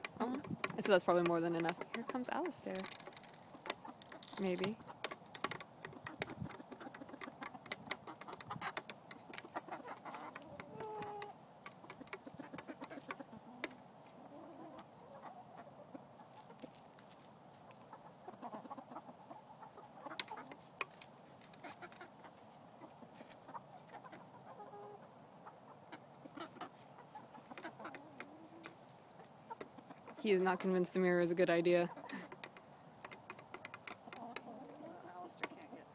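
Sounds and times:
beaks pecking on a mirror: 0:00.0 - 0:13.8, 0:20.0 - 0:22.2, 0:26.4 - 0:35.7
chickens clucking: 0:00.0 - 0:35.9.

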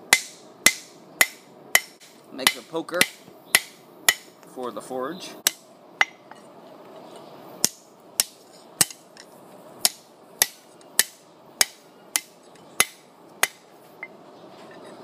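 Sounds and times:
hammer striking metal on anvil: 0:00.1 - 0:04.4, 0:05.4 - 0:06.3, 0:07.6 - 0:09.0, 0:09.8 - 0:13.6.

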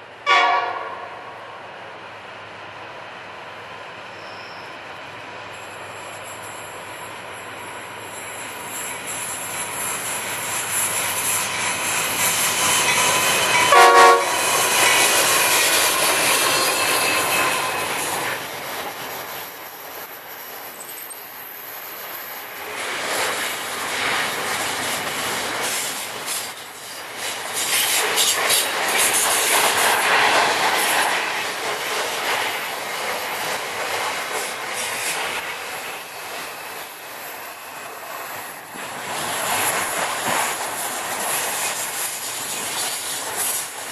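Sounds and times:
train horn blast: 0:00.2 - 0:01.3, 0:13.7 - 0:14.5
train wheels squealing: 0:03.8 - 0:33.7, 0:34.3 - 0:43.9.

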